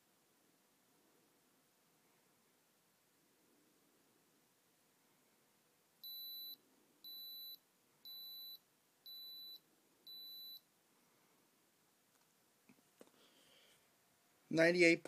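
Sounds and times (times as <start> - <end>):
thermometer beeping: 6.0 - 10.6.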